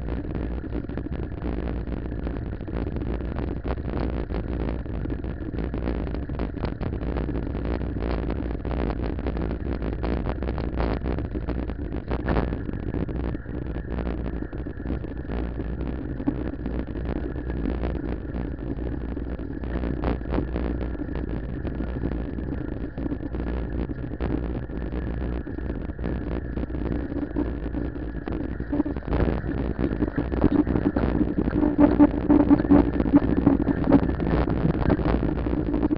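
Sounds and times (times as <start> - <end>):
wind buffeting microphone: 11.0 - 35.9.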